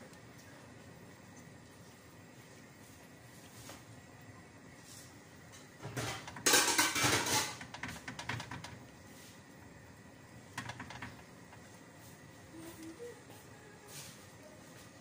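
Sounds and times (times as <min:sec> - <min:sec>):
bowl and brush clattering on metal tray: 0:05.8 - 0:08.7.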